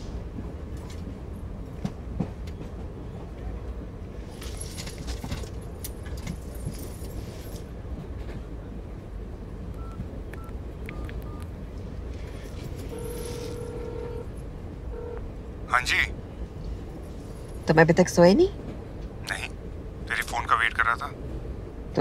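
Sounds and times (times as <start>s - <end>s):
moving train rumble: 0.0s - 22.0s
mobile phone beep: 9.8s - 11.5s, 12.9s - 14.2s.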